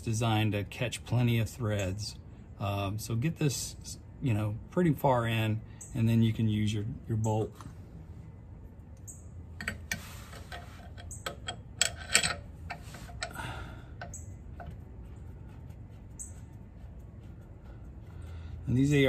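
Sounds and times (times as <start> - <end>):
metal bolt clicks and clinks: 9.6 - 13.4.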